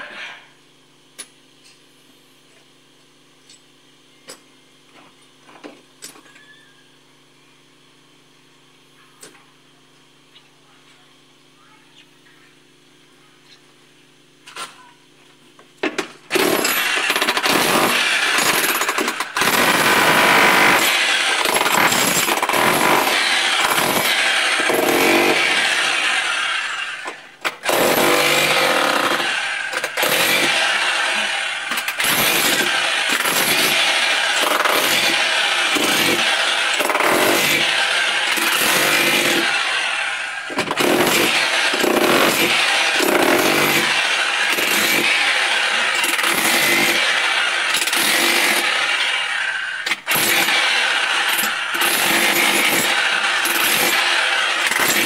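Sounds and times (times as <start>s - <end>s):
demolition hammer chipping tiles: 15.9s - 55.0s.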